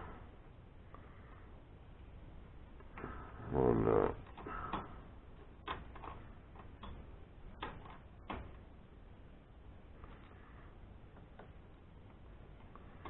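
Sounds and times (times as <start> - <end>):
metallic clicks and knocks: 4.2 - 8.6.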